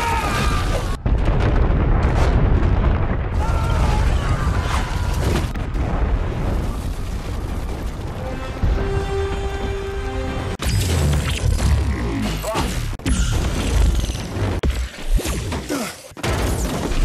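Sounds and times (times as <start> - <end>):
avalanche rumble: 0.5 - 10.6.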